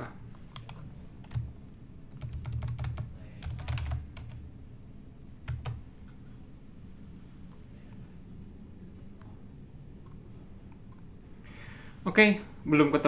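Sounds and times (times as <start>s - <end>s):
typing on a computer keyboard: 0.6s - 1.5s, 2.1s - 4.4s, 5.5s - 5.8s.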